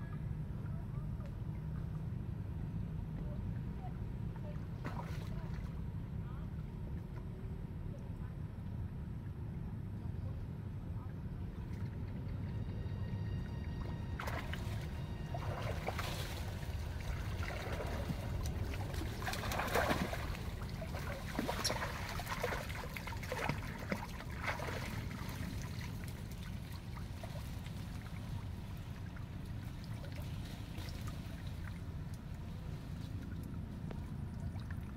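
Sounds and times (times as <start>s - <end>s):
monkeys splashing in water: 15.4s - 27.9s.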